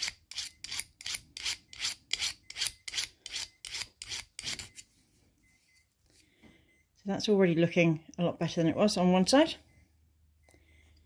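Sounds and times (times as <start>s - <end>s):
needle file rasping on steel teeth: 0.0s - 4.8s.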